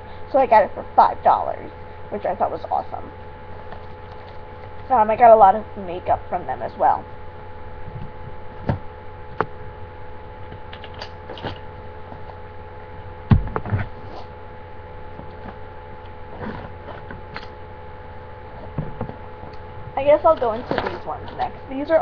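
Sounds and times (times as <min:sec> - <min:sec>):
electrical hum: 0:00.0 - 0:22.0
heavy thump: 0:13.3 - 0:13.9.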